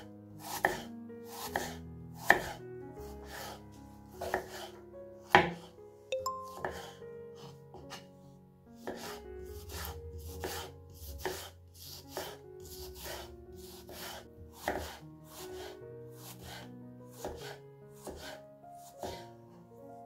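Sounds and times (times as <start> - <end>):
soft background music: 0.0 - 20.0
knife chopping on cutting board: 0.5 - 2.6, 4.2 - 4.7, 5.3 - 5.7, 8.8 - 12.4, 13.0 - 15.0, 17.2 - 19.3.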